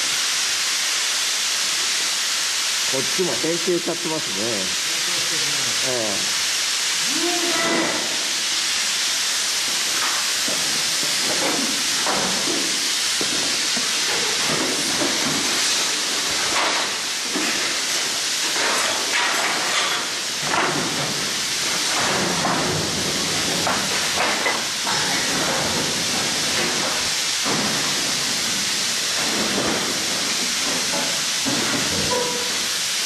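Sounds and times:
steady loud hiss: 0:00.0 - 0:33.0.

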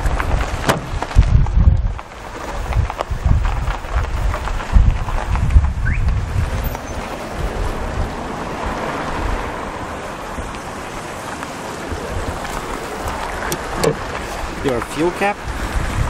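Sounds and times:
wind buffeting microphone: 0:00.0 - 0:16.0.

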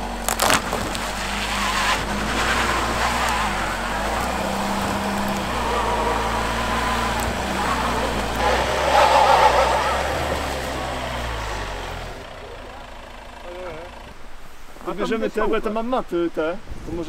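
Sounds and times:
wheels spinning on snow: 0:00.0 - 0:12.8
engine revving: 0:00.0 - 0:14.2.

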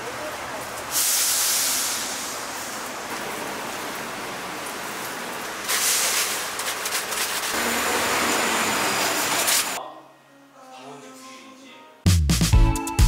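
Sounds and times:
hot oil sizzling in fryer: 0:00.7 - 0:09.8.

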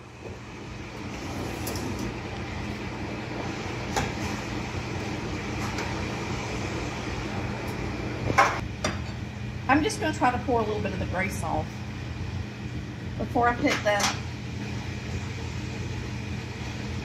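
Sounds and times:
oven fan hum: 0:00.0 - 0:17.0.

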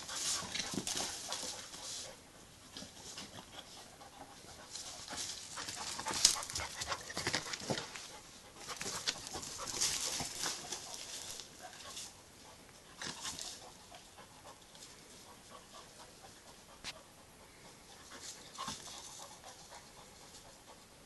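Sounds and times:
dogs panting: 0:00.0 - 0:21.0
paws scuffling on gravel: 0:04.6 - 0:12.2.

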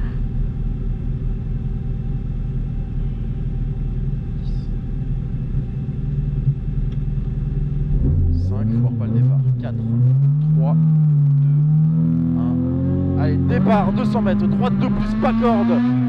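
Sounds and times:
car engine idling from inside: 0:00.0 - 0:12.6.

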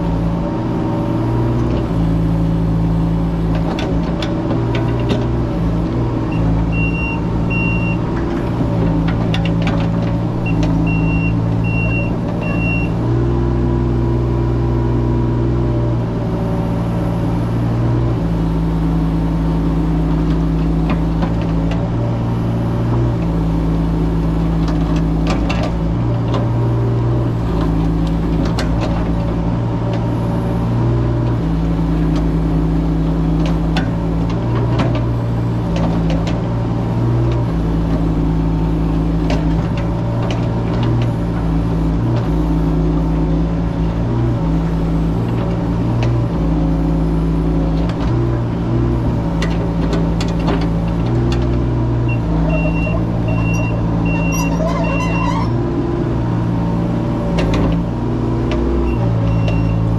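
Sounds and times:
excavator diesel engine running: 0:00.0 - 0:59.9
short high beeps: 0:52.5 - 0:55.2.

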